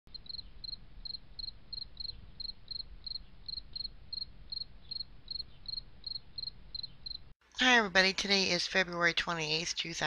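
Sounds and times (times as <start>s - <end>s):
cricket chirping: 0.1s - 7.3s.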